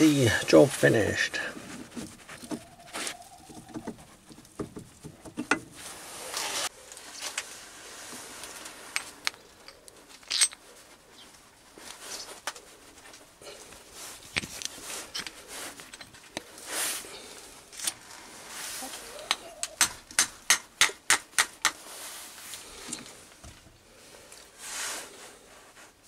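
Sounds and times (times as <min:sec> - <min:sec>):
metal clicks and clinks: 0:09.7 - 0:10.6.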